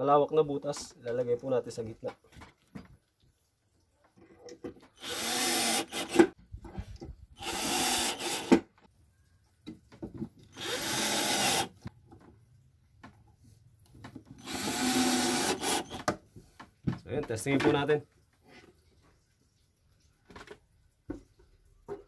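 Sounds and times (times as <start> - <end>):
cordless drill whining: 5.0 - 6.3, 7.4 - 8.6, 10.6 - 11.8, 14.4 - 16.1.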